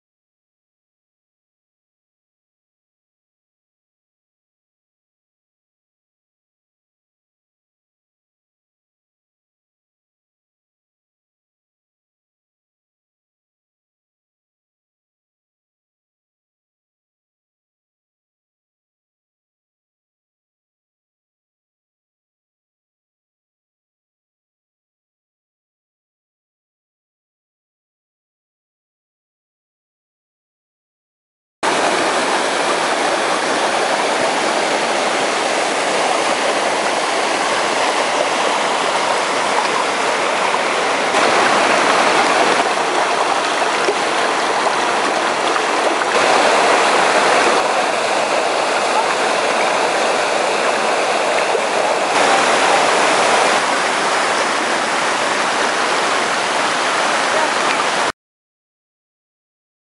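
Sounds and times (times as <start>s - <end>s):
creek water rushing over rocks: 31.6s - 58.1s.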